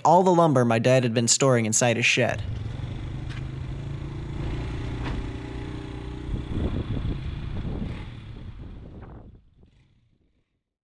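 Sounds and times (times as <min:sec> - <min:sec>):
truck engine idling: 0:02.3 - 0:09.6.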